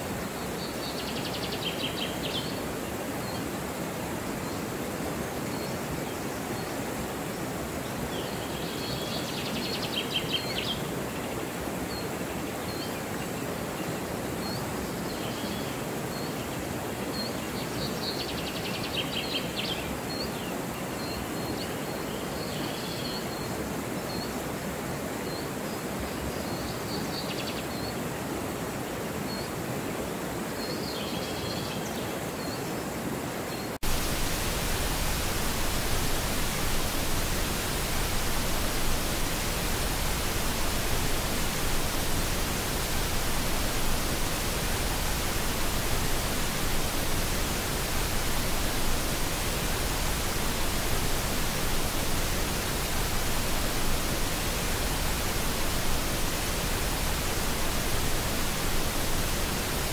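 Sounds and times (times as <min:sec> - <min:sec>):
small birds chirping: 0:33.6 - 0:59.9
churning water rushing: 0:33.8 - 0:59.9.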